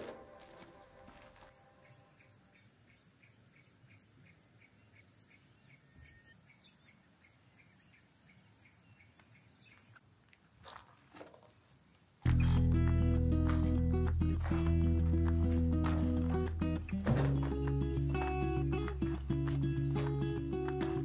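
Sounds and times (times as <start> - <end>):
insects buzzing: 1.1 - 21.0
insect chirping: 1.4 - 14.0.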